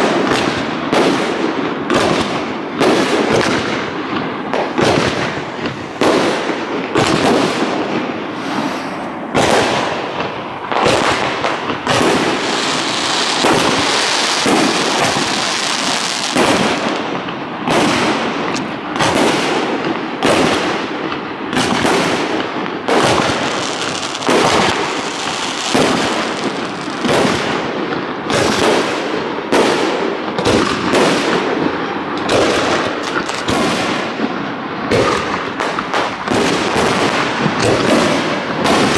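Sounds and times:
firework shells bursting: 0.0s - 22.1s, 34.9s - 38.9s
booms echoing: 0.0s - 23.6s.

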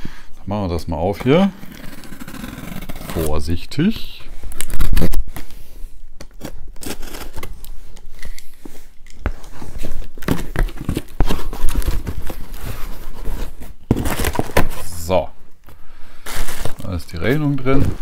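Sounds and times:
cardboard tearing and scraping: 1.6s - 3.5s, 6.3s - 7.7s, 9.4s - 15.0s, 16.2s - 18.0s.

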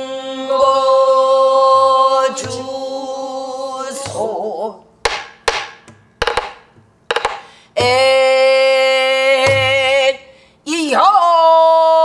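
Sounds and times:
barrel drum struck with stick: 5.0s - 8.0s.

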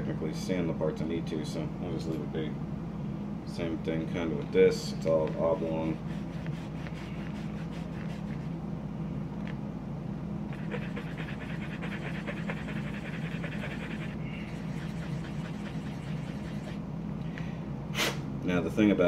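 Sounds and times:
steady low hum: 0.0s - 19.0s
plastic scratching on buffing block: 5.6s - 8.5s, 10.6s - 16.8s.

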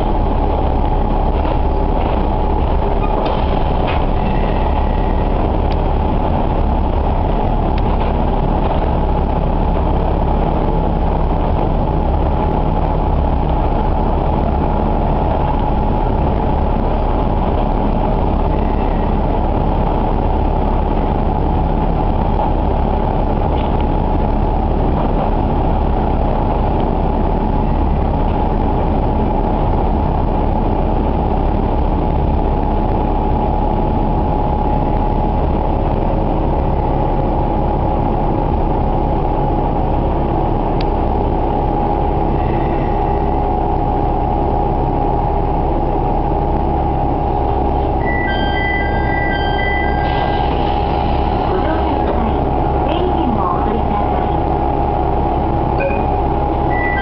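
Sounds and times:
wheels rolling on rails: 0.0s - 42.9s
diesel railcar engine drone: 0.0s - 57.0s.

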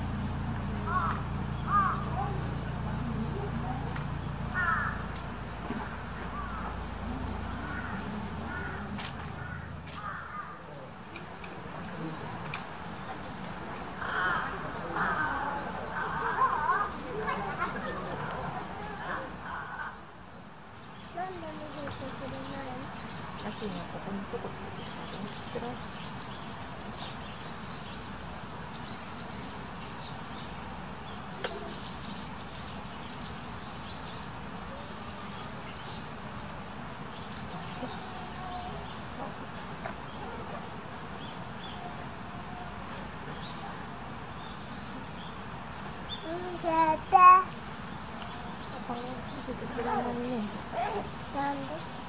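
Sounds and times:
outdoor background noise: 0.0s - 52.0s
small birds chirping: 0.0s - 52.0s
bird calling: 0.8s - 2.7s, 4.5s - 11.4s, 47.2s - 52.0s.

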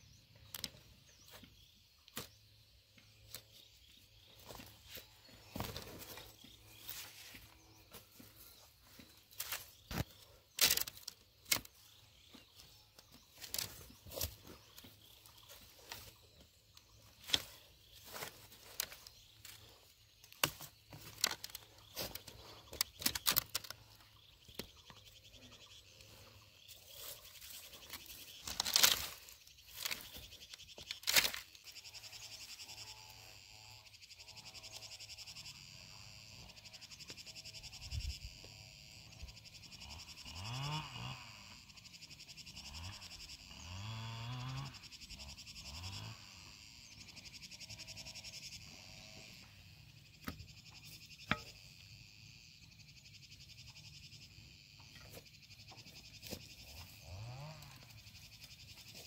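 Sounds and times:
chirring chorus of small animals: 0.0s - 59.0s
vine binding rustling and snapping: 9.9s - 11.7s, 20.3s - 23.7s, 27.8s - 30.1s, 30.8s - 31.4s.

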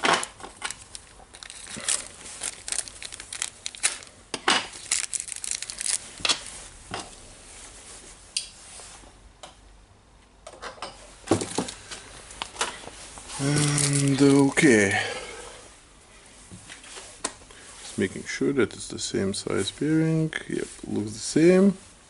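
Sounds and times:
plastic wrapper crinkling: 0.0s - 6.7s, 13.3s - 14.8s.

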